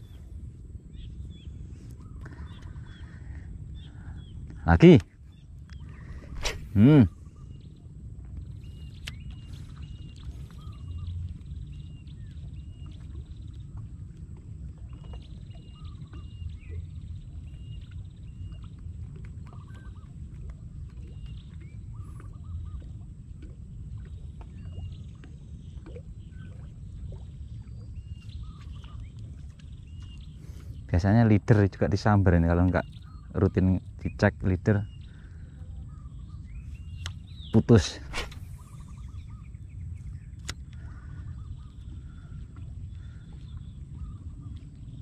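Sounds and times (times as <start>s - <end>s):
wind rumble on microphone: 0.0s - 45.0s
faint bird chirps: 0.9s - 7.9s, 8.5s - 14.0s, 14.9s - 18.8s, 19.4s - 20.4s, 21.0s - 23.0s, 24.0s - 31.2s, 32.6s - 45.0s
wind on microphone: 5.8s - 12.6s, 35.9s - 45.0s
birds chirping and whistling: 8.6s - 13.0s, 34.8s - 40.4s
sharp click: 38.1s - 38.5s.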